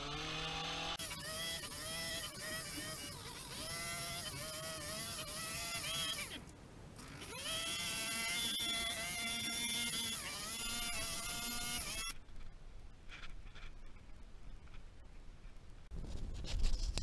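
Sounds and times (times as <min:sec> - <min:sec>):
hedge trimmer whining: 0:00.0 - 0:06.4, 0:07.0 - 0:12.2.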